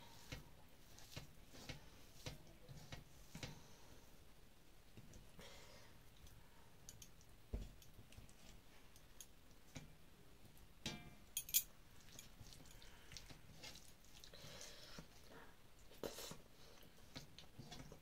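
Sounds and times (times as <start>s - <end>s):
rice mixed by hand squishing: 0.0s - 6.6s, 11.8s - 18.0s
sharp clinks on metal plate: 10.9s - 11.7s.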